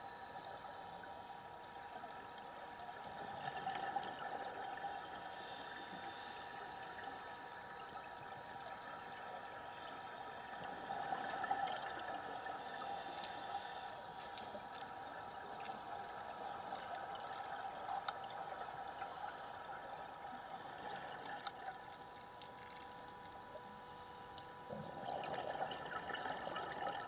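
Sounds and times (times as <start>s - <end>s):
thin steady hum: 0.0s - 27.0s
faint clicks: 13.0s - 13.4s, 14.1s - 16.2s
underwater regulator bubbles burbling: 24.7s - 27.0s.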